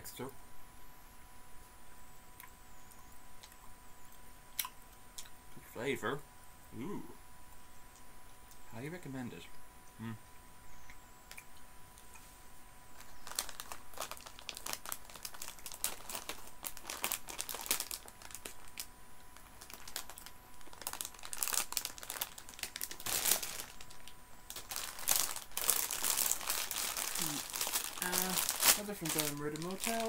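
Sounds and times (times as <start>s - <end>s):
plastic packets crinkling: 12.9s - 30.0s.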